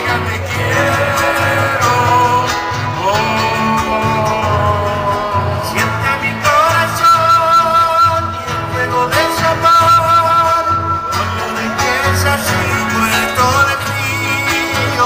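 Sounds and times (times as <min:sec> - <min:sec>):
acoustic guitars strumming: 0:00.0 - 0:15.0
person singing long held notes: 0:00.5 - 0:15.0.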